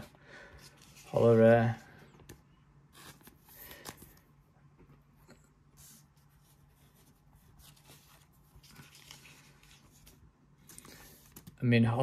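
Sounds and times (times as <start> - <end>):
card in plastic sleeve rustling: 0.6 - 1.8, 5.8 - 11.9.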